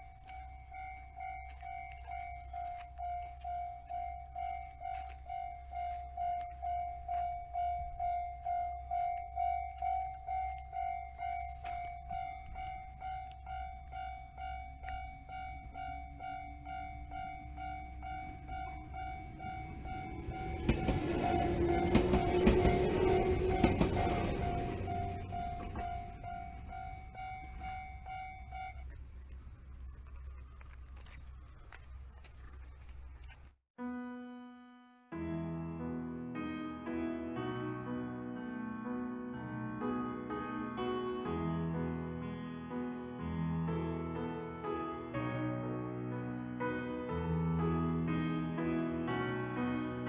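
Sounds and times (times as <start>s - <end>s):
level crossing bell clanging: 0.0s - 28.8s
low rumble: 0.0s - 33.3s.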